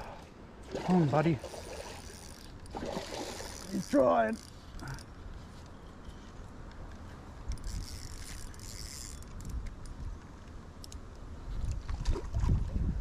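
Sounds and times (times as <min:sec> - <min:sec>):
fishing reel clicking: 0:01.5 - 0:02.7, 0:07.5 - 0:09.9.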